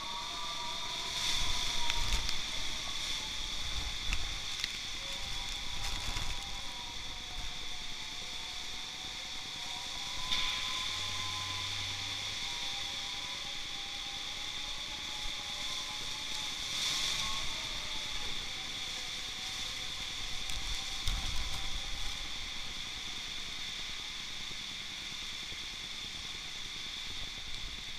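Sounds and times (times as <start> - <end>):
heavy rain hissing: 0.0 - 27.9
wind whistling: 0.0 - 27.9.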